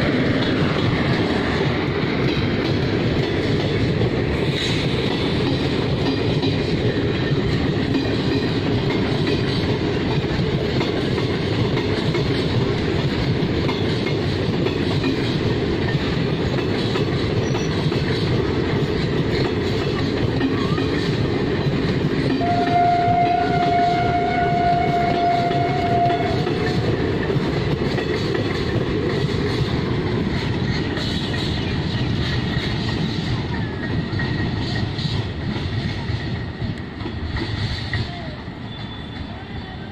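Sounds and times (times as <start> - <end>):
train wheels rumbling on track: 0.0 - 39.9
train horn blast: 22.4 - 26.9.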